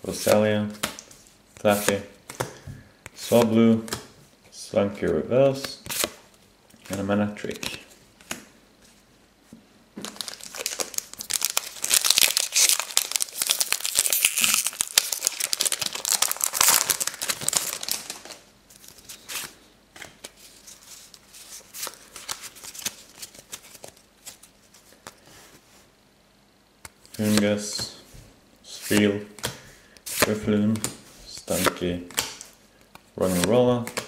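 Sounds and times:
foil wrapper tearing and crinkling: 10.0s - 18.4s.

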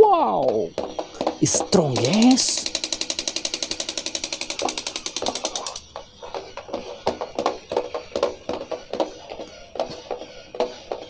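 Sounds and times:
toy gearbox clicking and knocking: 0.5s - 6.0s
electronic toy sound effects: 1.2s - 6.4s
fast even rattle: 1.7s - 5.8s.

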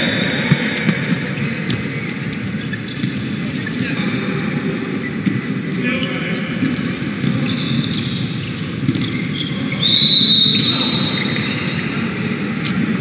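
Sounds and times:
arena crowd noise: 0.0s - 13.0s
ball bouncing on court: 0.4s - 2.0s, 6.6s - 8.1s, 8.8s - 9.5s
referee's whistle blast: 9.8s - 11.7s.

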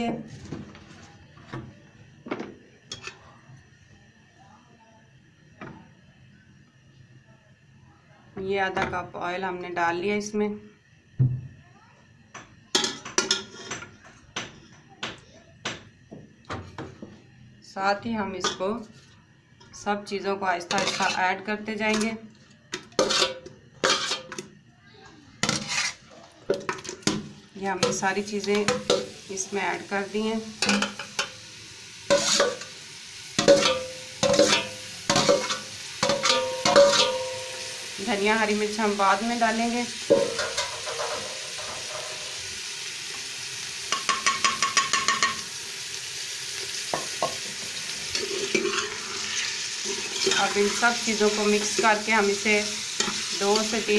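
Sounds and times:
metal spoon clanking on cookware: 12.7s - 13.9s, 20.7s - 21.2s, 22.8s - 24.5s, 30.6s - 31.4s, 32.1s - 32.7s, 33.4s - 37.8s, 40.1s - 42.3s, 43.9s - 45.4s, 48.1s - 49.0s, 49.9s - 50.8s
metal ladle clinking on pot: 33.4s - 37.7s.

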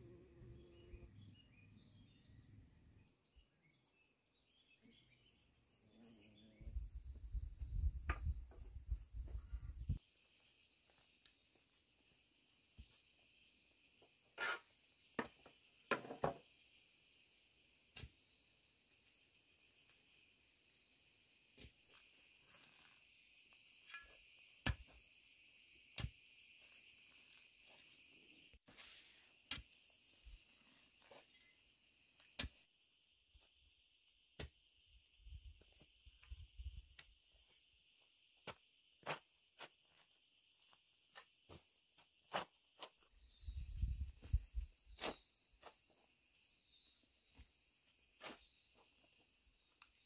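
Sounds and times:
high-pitched insect chorus: 5.6s - 50.0s
wooden stick knocking dirt: 29.5s - 29.7s, 32.4s - 32.6s.

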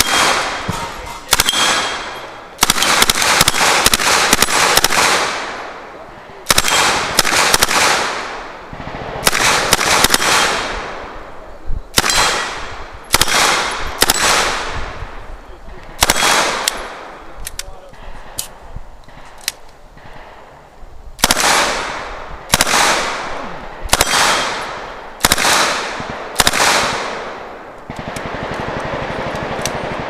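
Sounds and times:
gunshot echo: 0.0s - 5.8s, 6.4s - 11.2s, 12.0s - 14.9s, 16.0s - 17.1s, 21.2s - 27.4s.

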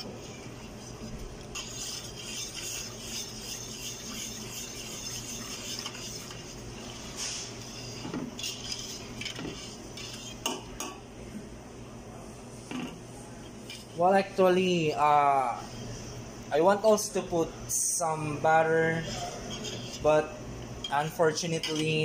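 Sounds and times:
whisk clinking on pot: 0.0s - 7.0s, 7.6s - 10.9s, 19.0s - 20.0s
whisk scraping metal pot: 0.0s - 10.6s, 18.5s - 22.0s.

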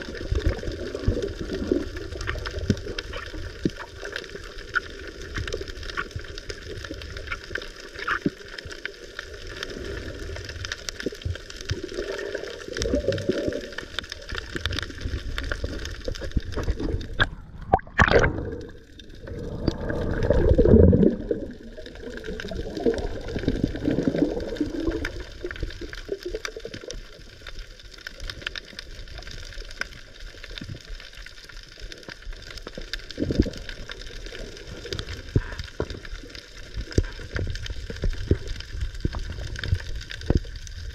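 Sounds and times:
faint crackling: 0.0s - 40.9s
water rushing and gurgling: 0.0s - 40.9s
underwater hiss: 16.6s - 25.6s.

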